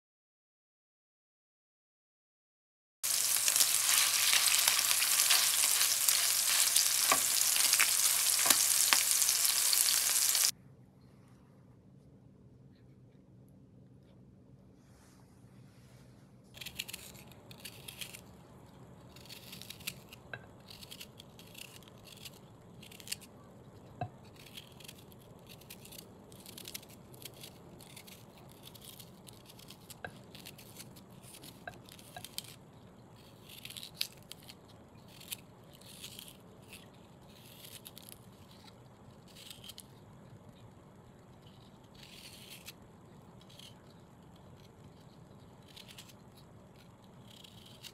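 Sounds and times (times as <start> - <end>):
knife scraping and slicing: 3.1 - 10.5, 16.6 - 18.4, 19.1 - 23.3, 24.2 - 32.6, 33.2 - 40.0, 41.4 - 42.8, 43.4 - 47.9.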